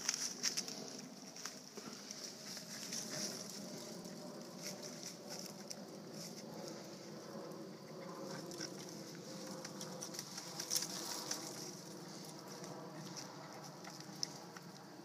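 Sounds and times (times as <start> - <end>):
dog rustling through dry leaves: 9.2 - 12.7.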